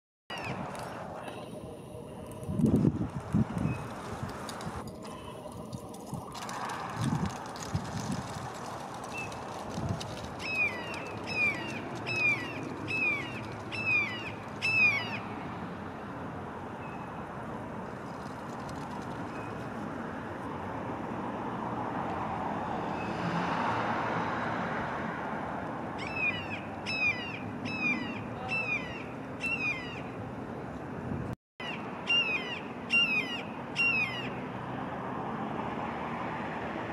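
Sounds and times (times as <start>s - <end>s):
steady rushing noise: 0.6s - 16.5s.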